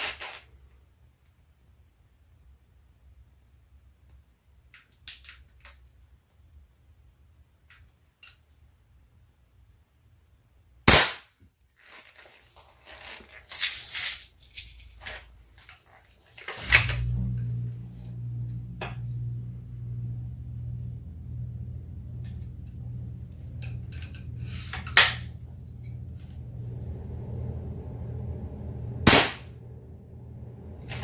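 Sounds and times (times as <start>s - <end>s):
rifle handling clicks and rattles: 4.7s - 5.9s
air rifle firing crack: 10.9s - 11.3s, 29.1s - 29.5s
steady low hum: 14.4s - 31.0s.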